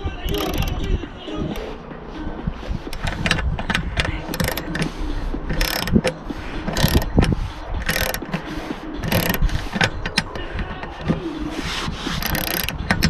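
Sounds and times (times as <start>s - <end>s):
ratchet wrench clicking: 0.2s - 0.9s, 2.8s - 11.2s, 12.1s - 13.0s.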